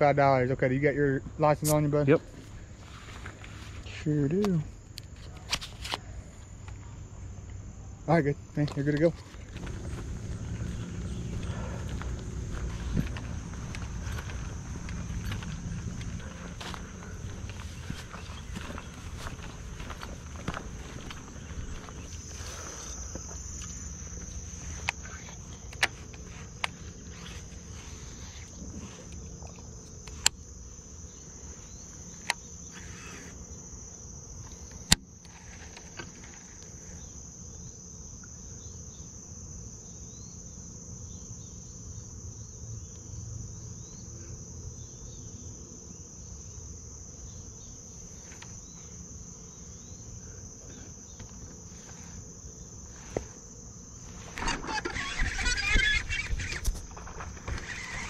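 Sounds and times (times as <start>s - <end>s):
insects droning: 0.0s - 58.0s
fishing rods and reel clicking: 11.4s - 21.2s, 54.3s - 58.0s.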